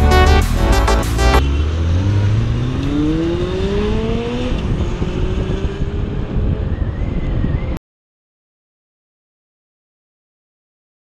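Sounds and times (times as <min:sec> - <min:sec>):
motorcycle engine accelerating: 0:00.0 - 0:07.8
wind rumble on microphone: 0:02.3 - 0:07.8.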